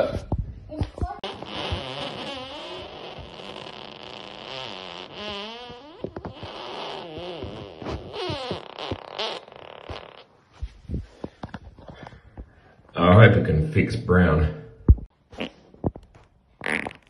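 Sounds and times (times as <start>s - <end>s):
wobbling fart-like noise: 1.0s - 10.3s, 14.9s - 17.0s.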